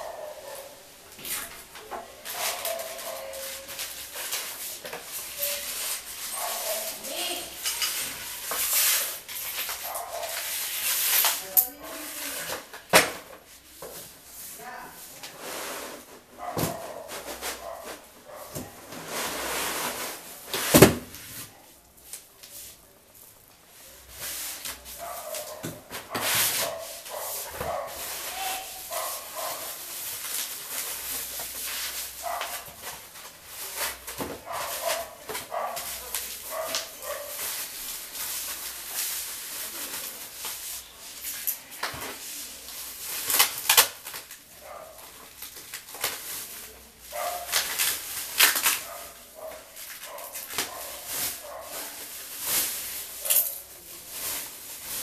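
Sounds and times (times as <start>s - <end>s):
plastic wrap rustling: 0.0s - 55.0s
foam packing squeaks: 2.2s - 7.5s, 24.0s - 41.0s, 42.4s - 44.4s, 45.4s - 49.5s.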